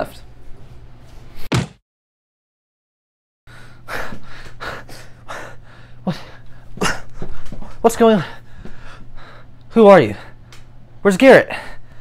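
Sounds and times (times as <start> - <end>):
man breathing hard: 3.5 - 10.5
faint steady hum: 3.5 - 12.0.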